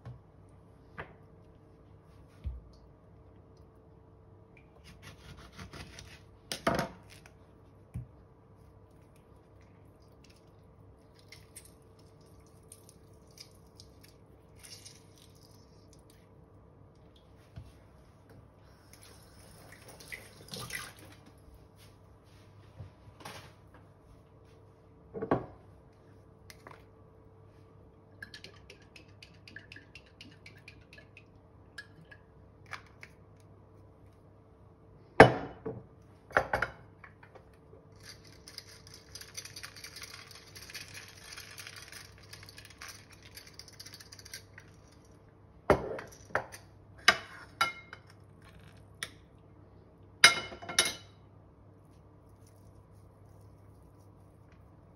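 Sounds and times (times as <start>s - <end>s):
faint steady hum: 0.0s - 54.9s.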